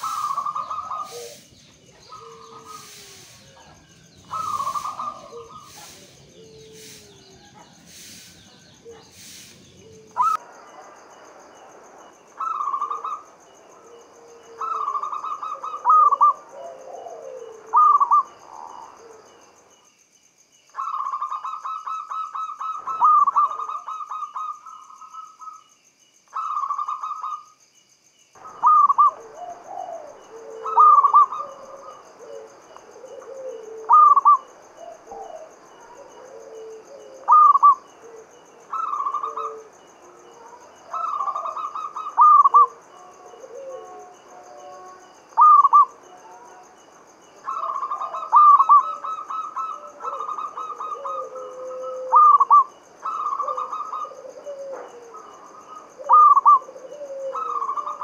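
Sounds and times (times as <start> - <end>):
dove cooing song: 0.0 - 10.4, 12.4 - 19.4, 20.8 - 25.6, 28.4 - 46.7, 47.4 - 58.0
soft low dove coos: 0.0 - 10.4, 13.8 - 19.4, 28.4 - 46.8, 47.4 - 58.0.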